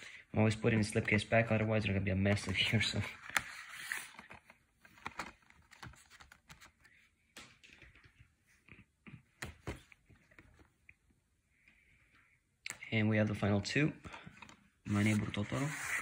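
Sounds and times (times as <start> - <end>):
cardboard sleeve rustling: 2.3 - 7.0, 14.5 - 16.0.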